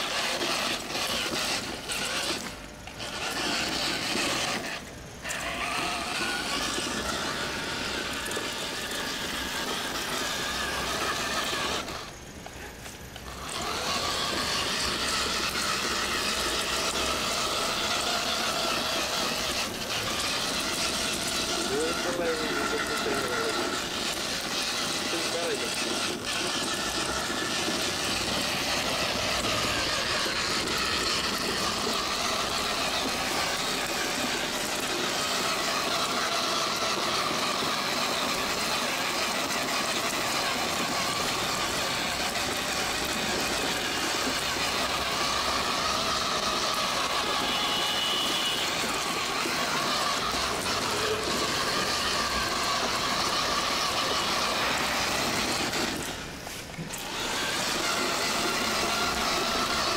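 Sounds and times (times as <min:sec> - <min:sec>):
electric toy motor whirring: 0:00.0 - 0:59.9
wheels rolling over tiles: 0:00.0 - 0:59.9.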